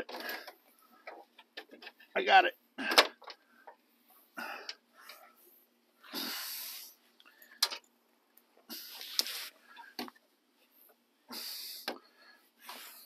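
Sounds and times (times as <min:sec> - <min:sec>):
man breathing heavily: 0:02.8 - 0:07.7, 0:08.6 - 0:13.0.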